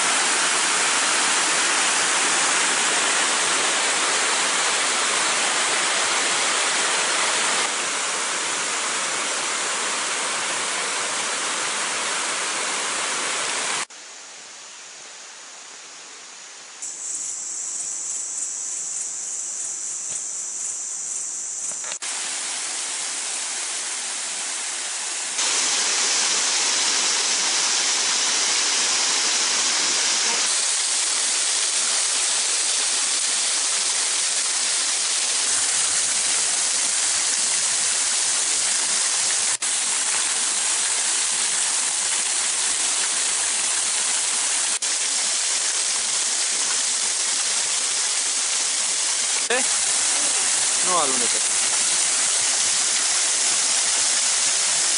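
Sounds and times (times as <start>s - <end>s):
waterfall rushing and splashing: 0.0s - 14.1s, 21.8s - 54.9s
insect chirring: 16.8s - 22.0s.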